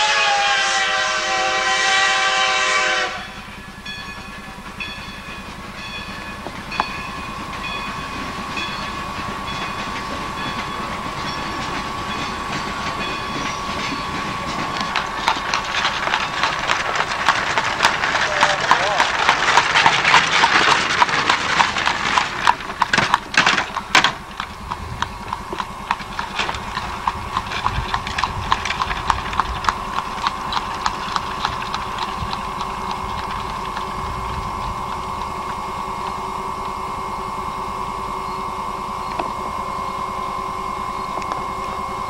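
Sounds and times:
buggy wheels grinding on road: 0:01.5 - 0:42.0
horse hooves clip-clopping on road: 0:04.0 - 0:36.8, 0:40.9 - 0:41.9
faint steady whine: 0:21.0 - 0:42.0.

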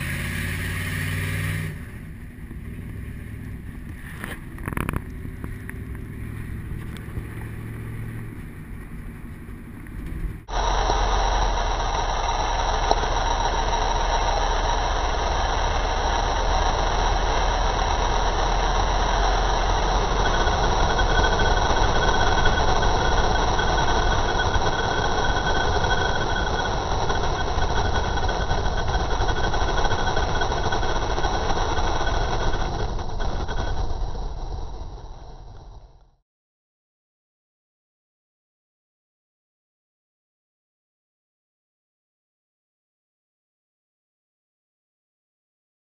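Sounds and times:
pickup engine and exhaust drone: 0:00.0 - 0:36.2
wind and road rush: 0:00.0 - 0:36.2.

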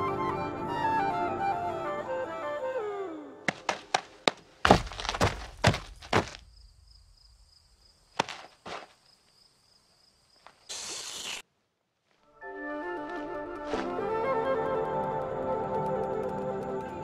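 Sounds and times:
cartoon footstep knocks: 0:03.5 - 0:06.5
short hiss: 0:10.7 - 0:11.4.

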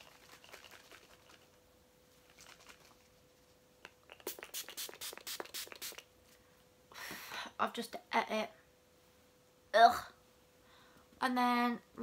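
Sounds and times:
spray bottle spritzes: 0:04.1 - 0:06.1.

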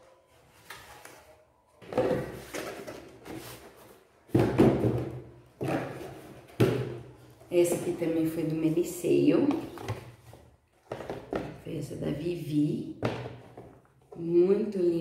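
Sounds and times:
boxes thumping on table: 0:04.3 - 0:07.1.

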